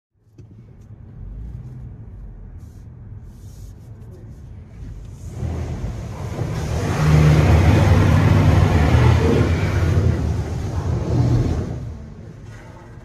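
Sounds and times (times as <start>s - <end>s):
car wash spraying water: 4.5s - 12.4s
deep rumble: 4.6s - 13.0s.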